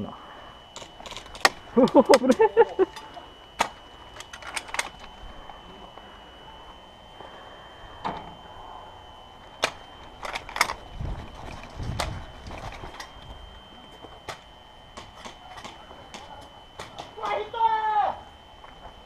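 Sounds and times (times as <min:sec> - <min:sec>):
faint high whine: 0:00.0 - 0:19.0
gear knocks and clicks: 0:00.8 - 0:05.1, 0:09.6 - 0:13.3.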